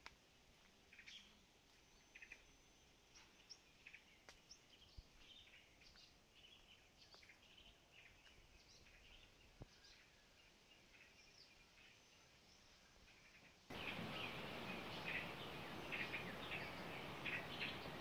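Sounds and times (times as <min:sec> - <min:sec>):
birds chirping and trilling: 0:13.0 - 0:18.0.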